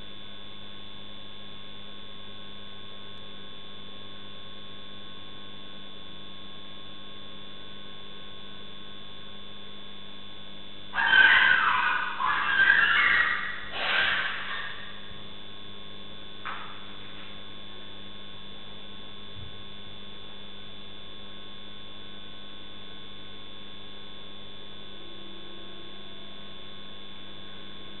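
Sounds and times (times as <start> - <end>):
electrical hum: 0.0 - 28.0
thin high whine: 10.7 - 18.7
animal cry: 11.0 - 15.2.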